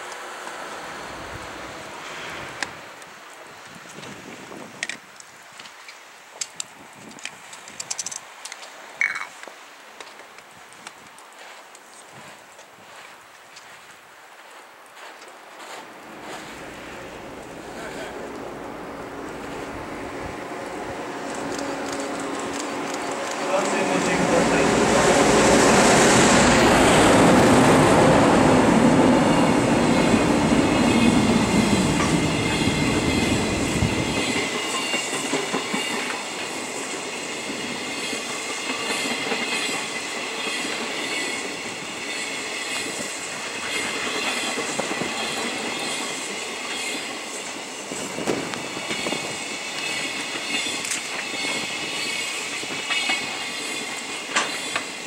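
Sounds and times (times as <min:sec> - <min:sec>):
electric locomotive rumbling past: 0:00.0 - 0:03.0, 0:15.6 - 0:55.0
train wheels clattering over rail joints: 0:30.8 - 0:55.0.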